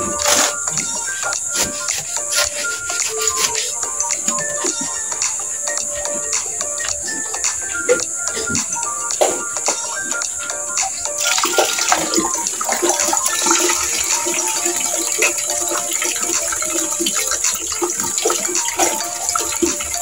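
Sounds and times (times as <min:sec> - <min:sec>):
scrapes and knocks of mixing cement: 0:00.0 - 0:04.7
tap water running into bucket: 0:00.0 - 0:20.0.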